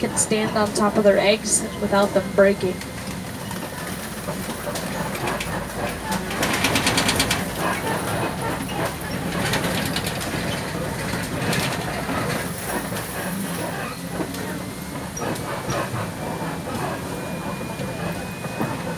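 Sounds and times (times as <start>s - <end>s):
truck engine droning: 0.0s - 18.9s
truck body rattling and knocking: 3.6s - 14.4s.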